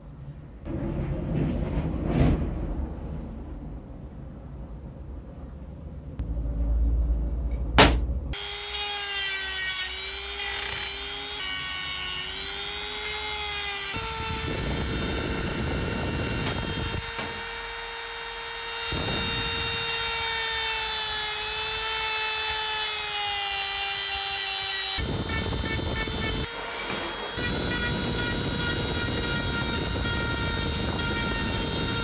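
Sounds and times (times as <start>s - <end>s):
rotary tool whine: 8.3s - 32.0s.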